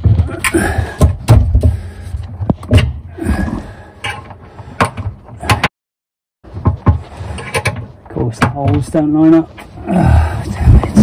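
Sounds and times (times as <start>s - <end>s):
metal strap knocking and rattling: 0.0s - 5.7s, 6.5s - 8.9s.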